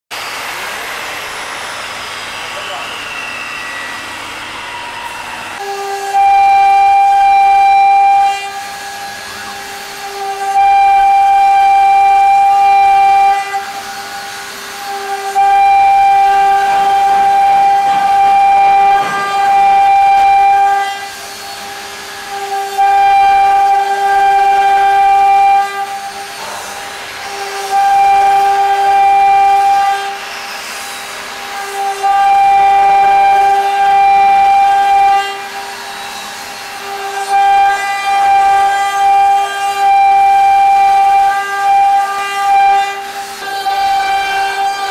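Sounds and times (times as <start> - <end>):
router spindle whining: 0.2 - 44.9.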